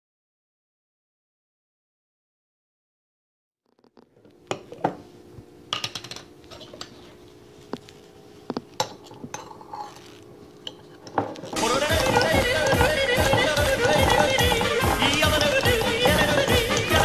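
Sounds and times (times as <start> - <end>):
faint steady hum: 3.9 - 17.0
lid and spoon clinking on glass jar: 10.6 - 17.0.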